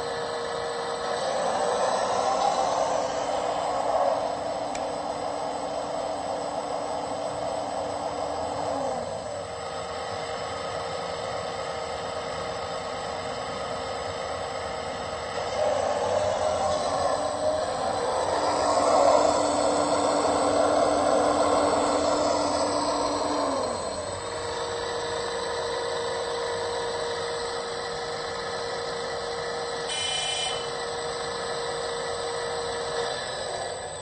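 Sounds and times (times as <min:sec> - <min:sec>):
simulated diesel engine: 0:00.0 - 0:34.0
short high beep: 0:29.9 - 0:30.7.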